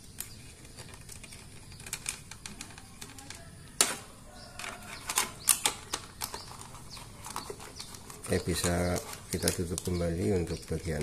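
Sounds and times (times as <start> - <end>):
plastic cover clicking: 4.9 - 10.0.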